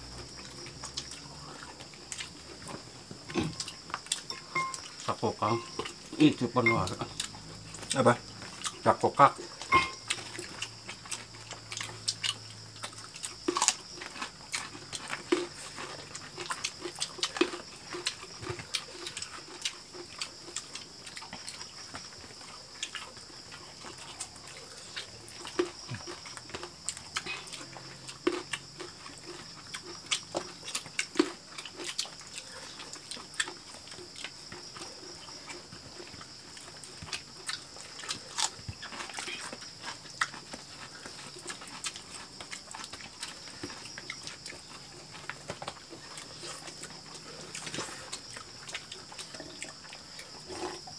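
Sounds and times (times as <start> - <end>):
chewing and lip-smacking: 0.2 - 50.9
high-pitched background drone: 4.3 - 4.8, 5.4 - 5.9, 6.6 - 7.2.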